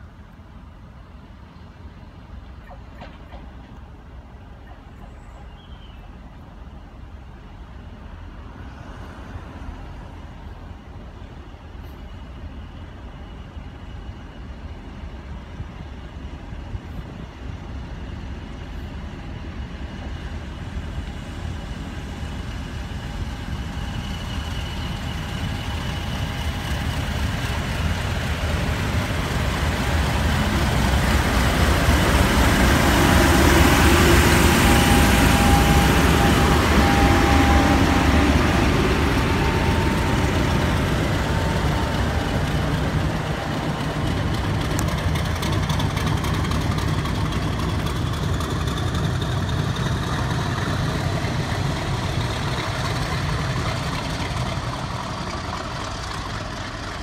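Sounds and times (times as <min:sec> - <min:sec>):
diesel locomotive approaching: 0:00.0 - 0:57.0
steady high tone: 0:32.2 - 0:44.8.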